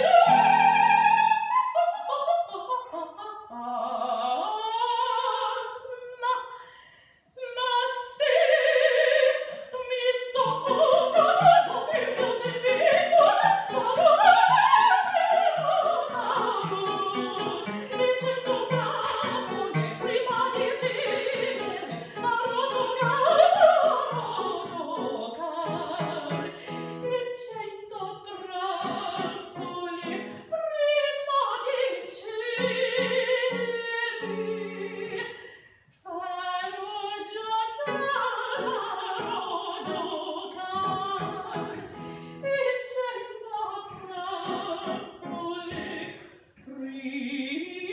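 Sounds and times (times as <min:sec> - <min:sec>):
piano accompaniment: 0:00.0 - 0:01.4, 0:10.4 - 0:27.2, 0:37.9 - 0:42.4
woman singing opera: 0:00.0 - 0:47.9.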